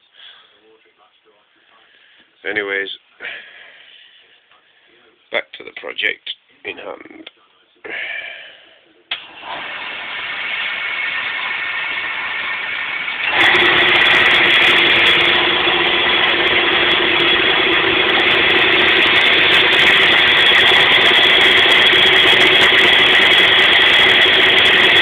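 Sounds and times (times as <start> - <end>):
metal lathe whining: 9.1 - 25.0.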